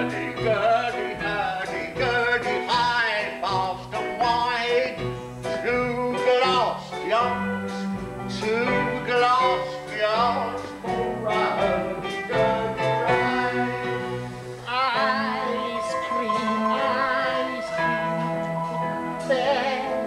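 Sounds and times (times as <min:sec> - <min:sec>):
instrumental accompaniment: 0:00.0 - 0:20.0
voices singing: 0:08.7 - 0:20.0.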